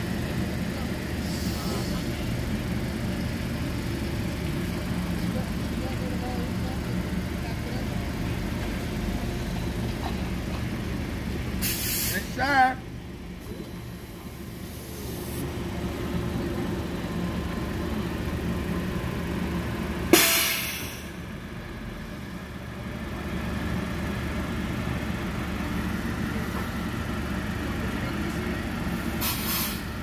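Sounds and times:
trolley bus electric hum: 0.0 - 30.0
air brake hiss: 11.6 - 12.4, 20.1 - 21.2, 29.1 - 29.9.

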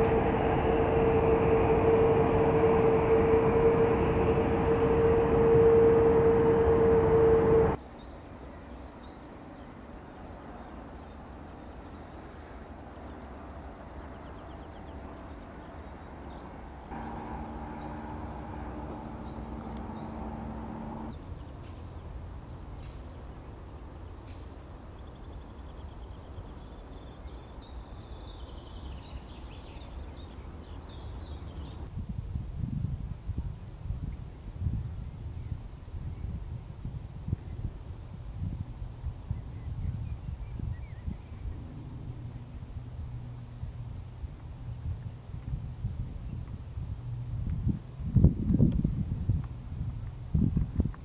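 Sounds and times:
loud steady hum: 0.0 - 7.8, 16.9 - 21.1, 41.4 - 44.7
low background rumble: 0.0 - 7.8, 16.9 - 21.2, 38.6 - 48.1.

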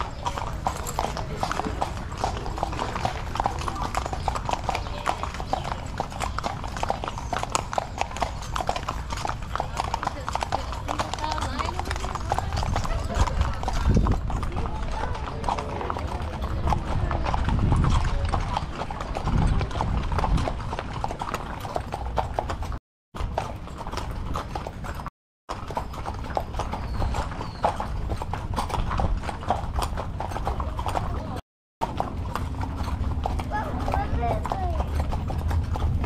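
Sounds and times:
horse hooves clip-clopping on dirt: 0.0 - 36.0.

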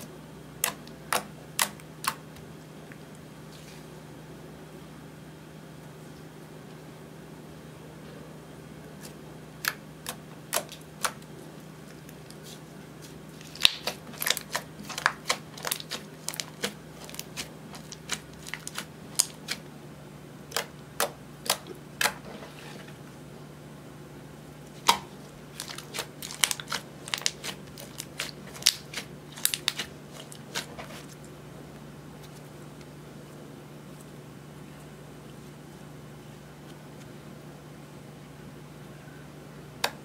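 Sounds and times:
slime squished by hand: 9.0 - 19.6, 20.5 - 22.3, 24.7 - 31.3.

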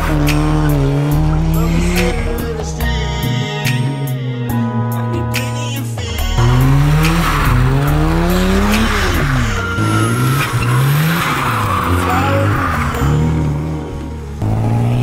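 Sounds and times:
car engine revving: 0.0 - 5.6, 6.2 - 15.0
tyres squealing: 6.4 - 13.5.

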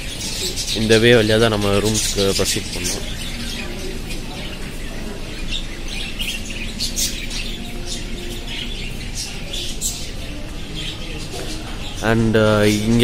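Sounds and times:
lovebirds chirping and squawking: 0.0 - 13.0.

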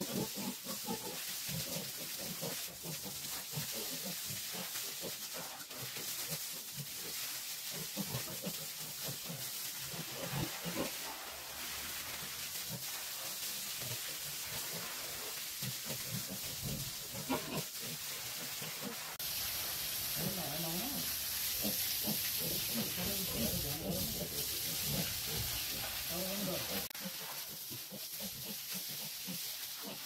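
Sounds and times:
garden hose spraying water: 0.0 - 30.0.

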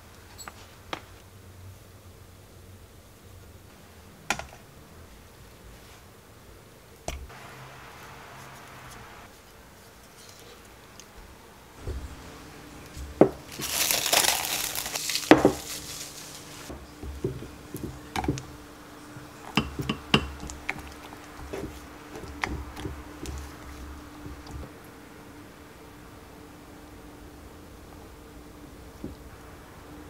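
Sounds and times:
spatula knocking against glass: 19.5 - 23.4.

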